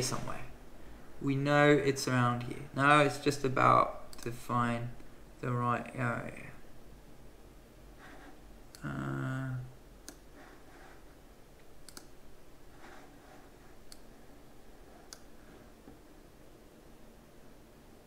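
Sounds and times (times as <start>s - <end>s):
man humming: 8.8s - 9.8s
computer mouse clicks: 10.0s - 10.3s, 11.6s - 12.2s, 13.8s - 14.1s, 15.0s - 16.0s.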